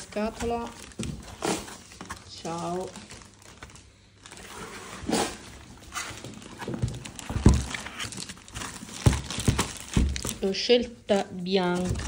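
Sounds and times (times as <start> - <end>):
cardboard box thumps: 6.6 - 7.8, 8.9 - 10.4.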